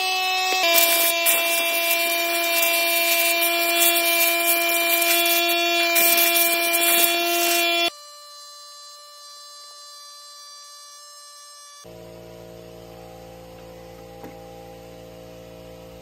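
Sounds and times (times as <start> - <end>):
electric motor running: 0.0 - 9.6
rushing scraping hiss: 0.6 - 7.9.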